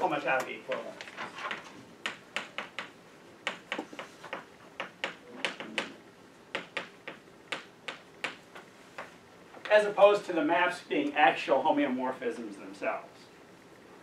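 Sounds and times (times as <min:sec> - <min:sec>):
chalk tapping and scratching: 0:03.5 - 0:09.2.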